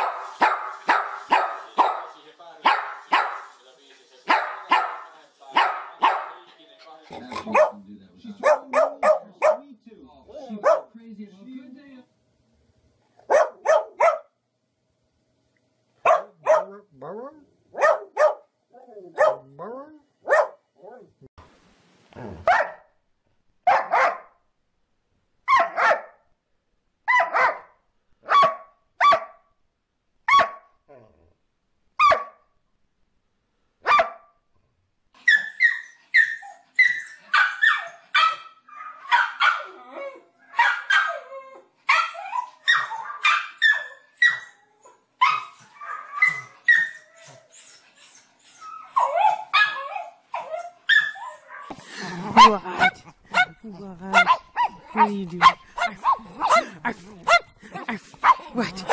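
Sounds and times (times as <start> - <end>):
dog barking: 0.0 - 3.5, 4.3 - 6.4, 7.2 - 7.8, 8.4 - 9.6, 10.4 - 11.0, 13.2 - 14.3, 16.0 - 16.8, 17.7 - 18.5, 19.1 - 19.6, 20.2 - 21.0, 22.4 - 22.9, 23.7 - 24.4, 25.5 - 26.2, 27.1 - 29.5, 30.3 - 30.7, 32.0 - 32.4, 33.8 - 34.3, 37.3 - 39.8, 40.5 - 41.2, 41.9 - 44.4, 50.9 - 58.9
small dog yapping: 32.0 - 32.4, 40.5 - 41.3, 41.9 - 44.5, 45.2 - 47.4, 49.0 - 58.9.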